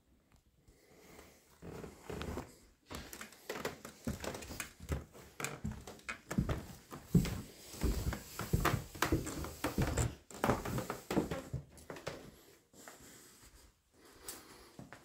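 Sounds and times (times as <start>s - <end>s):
footsteps on tiled floor: 1.0s - 15.0s.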